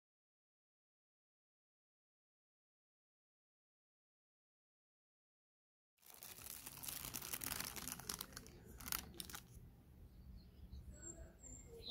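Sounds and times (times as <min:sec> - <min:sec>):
paper wrapping crinkling: 0:06.0 - 0:09.6.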